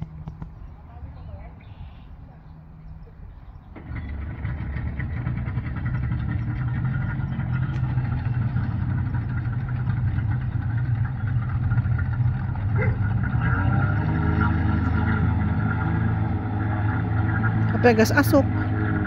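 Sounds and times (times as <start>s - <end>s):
jet boat engine running: 0.0s - 19.0s.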